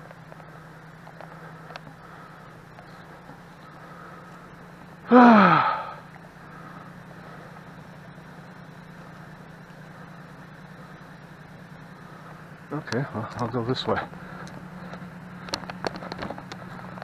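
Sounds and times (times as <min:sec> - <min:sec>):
truck engine idling: 0:00.0 - 0:17.0
man groaning: 0:05.1 - 0:06.0.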